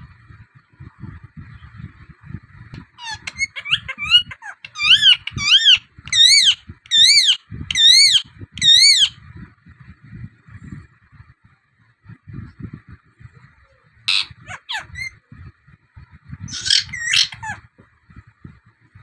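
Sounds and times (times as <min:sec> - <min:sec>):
parakeet screeching: 0:03.0 - 0:09.1, 0:14.1 - 0:15.1, 0:16.5 - 0:17.6
parakeet chirps: 0:03.0 - 0:09.2, 0:14.1 - 0:15.2, 0:16.5 - 0:17.6.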